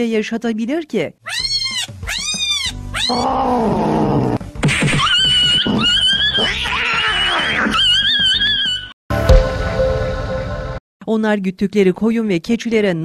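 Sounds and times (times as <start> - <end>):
cat yowling: 1.3 - 4.4, 5.1 - 8.9.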